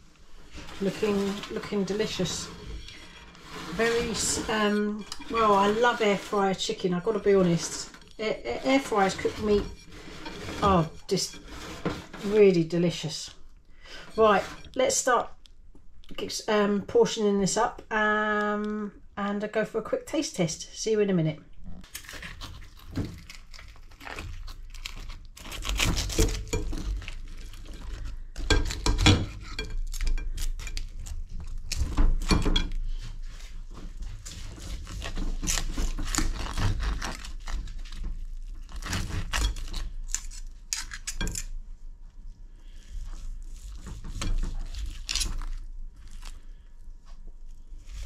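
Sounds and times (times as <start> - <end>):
cutlery scraping on a plate: 1.0 - 6.4, 7.7 - 12.4
meat tearing: 21.8 - 32.3, 34.3 - 41.6, 42.8 - 48.0.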